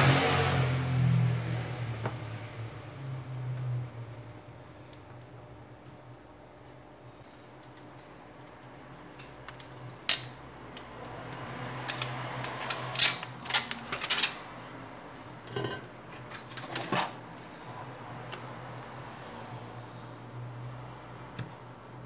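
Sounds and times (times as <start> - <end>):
small tools clicking and clattering: 11.8 - 14.4.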